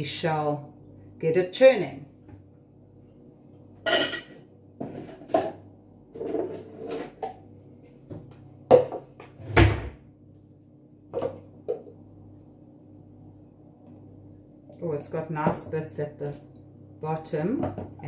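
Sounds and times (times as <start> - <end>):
spoon scraping plastic jug: 6.1 - 7.2.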